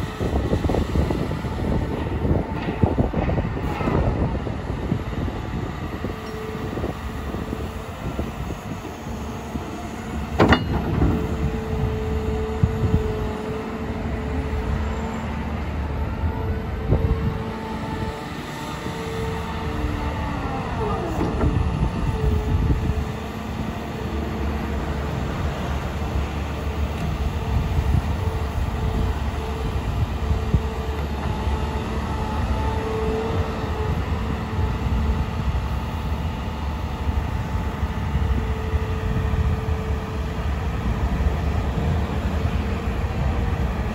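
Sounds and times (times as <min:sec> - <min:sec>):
excavator diesel engine and hydraulics: 0:00.0 - 0:43.9
steady hydraulic whine: 0:00.0 - 0:43.9.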